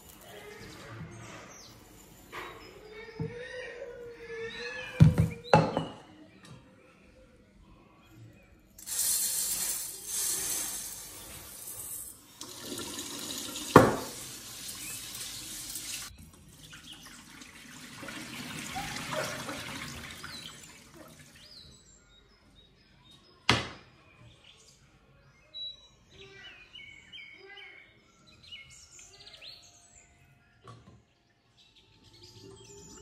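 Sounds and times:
rice rinsed in a metal pot: 0:08.8 - 0:21.4
water poured off: 0:08.8 - 0:21.5
tap running into a sink: 0:12.4 - 0:14.3.

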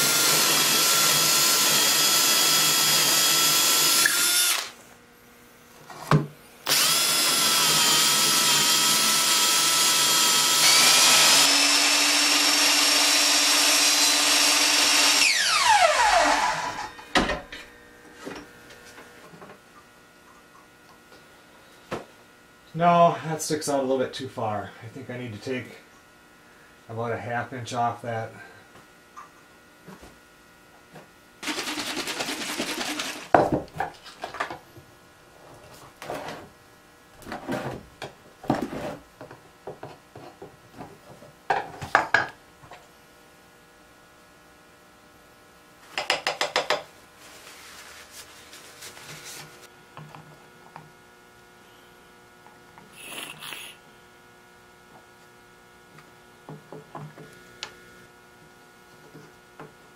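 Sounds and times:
tapping dowels into holes: 0:46.0 - 0:46.9.

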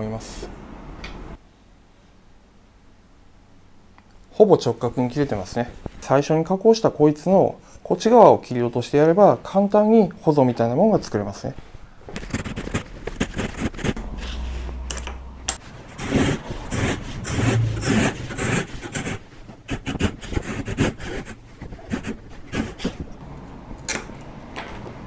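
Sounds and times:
hand saw cutting wood: 0:15.9 - 0:23.0.

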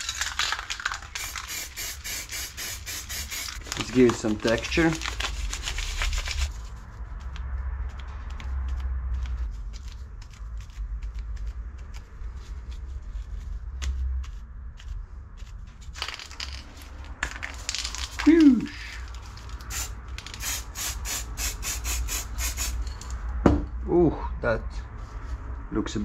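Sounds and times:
paper crinkling: 0:00.0 - 0:01.5, 0:03.5 - 0:14.4
low steady rumble: 0:00.0 - 0:26.0
aerosol spray hiss: 0:01.2 - 0:03.6, 0:19.7 - 0:22.8.

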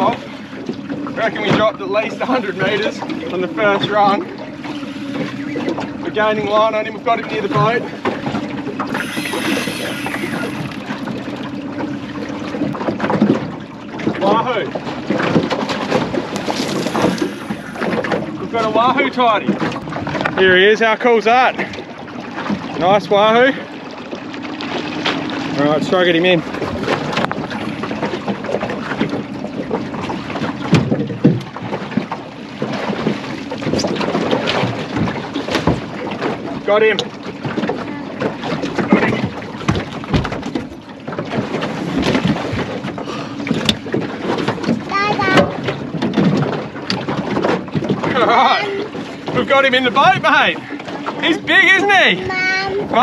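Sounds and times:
outboard motor running: 0:00.0 - 0:53.0
water noise: 0:00.0 - 0:53.0
falling whine: 0:08.7 - 0:11.2.

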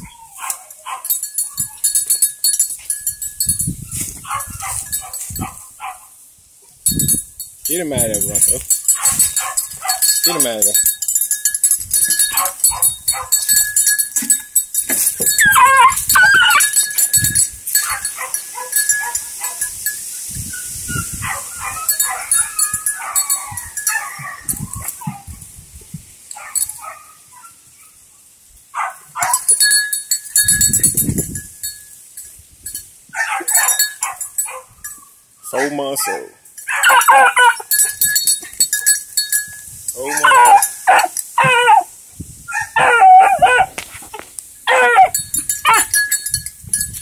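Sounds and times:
puppy whining and yelping: 0:00.0 - 0:01.9, 0:15.2 - 0:16.8, 0:21.0 - 0:25.2, 0:36.7 - 0:37.8, 0:40.2 - 0:41.9, 0:42.5 - 0:43.7, 0:44.7 - 0:45.9.

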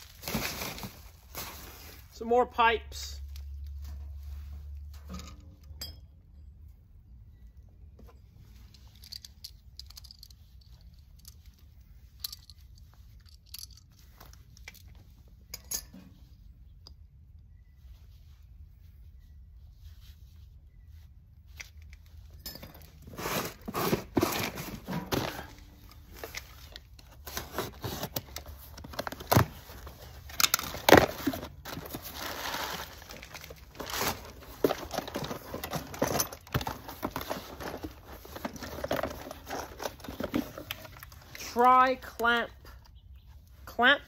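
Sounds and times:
cardboard and plastic tearing: 0:00.0 - 0:01.8, 0:26.2 - 0:41.2.

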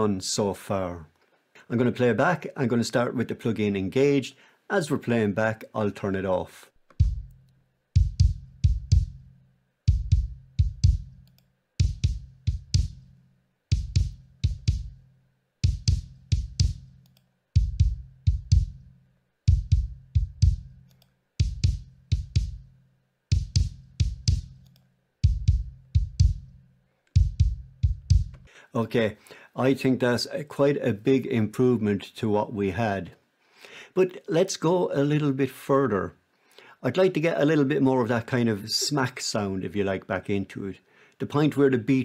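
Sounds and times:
kick drum looping: 0:06.9 - 0:11.2, 0:11.8 - 0:17.0, 0:17.6 - 0:26.6, 0:27.2 - 0:28.5.

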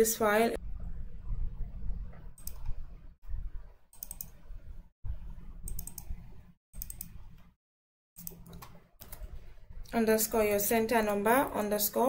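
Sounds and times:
low background rumble: 0:00.6 - 0:03.7
computer mouse clicks: 0:02.1 - 0:02.8, 0:04.0 - 0:04.4, 0:05.7 - 0:06.2, 0:06.8 - 0:07.2, 0:08.2 - 0:10.0.

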